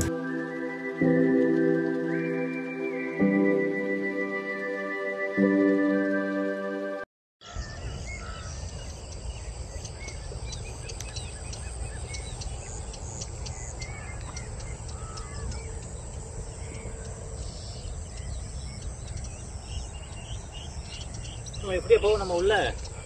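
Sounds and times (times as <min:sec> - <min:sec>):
small birds chirping: 0:07.4 - 0:23.0.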